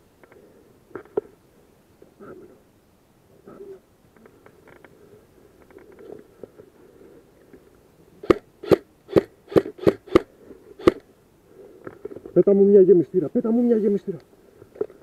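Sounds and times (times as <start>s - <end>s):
airsoft rifle shots: 8.2s - 11.0s.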